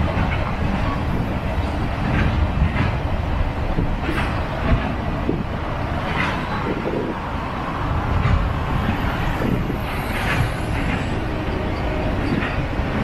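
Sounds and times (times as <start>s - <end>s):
freight train rumbling past: 0.0s - 13.0s
road traffic driving by: 0.0s - 13.0s.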